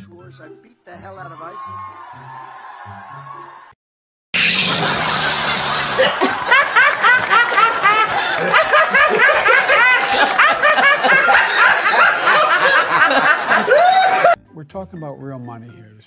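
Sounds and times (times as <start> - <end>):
woman laughing hysterically: 4.8 - 14.4.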